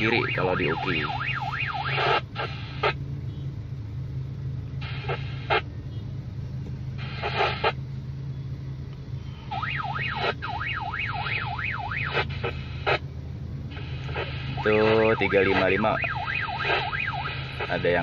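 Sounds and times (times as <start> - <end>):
bursts of radio noise: 0.0 - 3.0, 4.8 - 5.7, 7.0 - 7.8, 9.5 - 13.0, 13.7 - 18.0
warbling alarm tone over radio: 0.0 - 3.0, 9.5 - 12.9, 13.7 - 18.0
steady low hum: 0.0 - 18.0.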